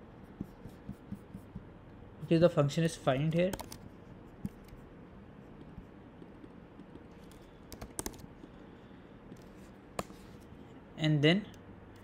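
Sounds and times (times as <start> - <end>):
computer keyboard keystrokes: 3.4 - 3.8, 6.8 - 8.3.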